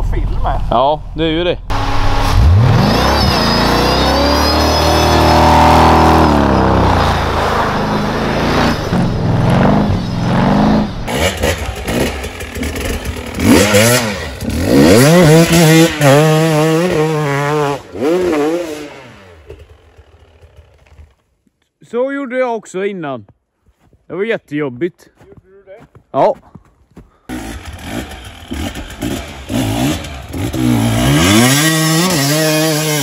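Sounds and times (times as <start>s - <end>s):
buggy engine revving: 1.7s - 21.0s, 27.3s - 33.0s
motorcycle engine revving hard: 1.7s - 21.0s, 27.3s - 33.0s.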